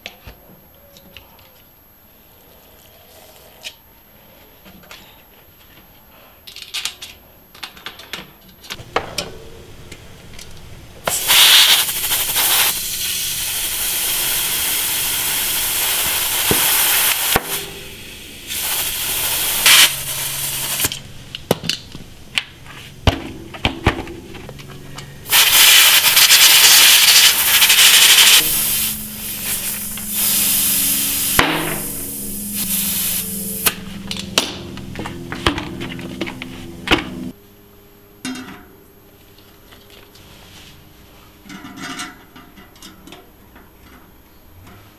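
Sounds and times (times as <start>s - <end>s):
loud hissing: 11.0s - 21.1s, 25.2s - 34.0s.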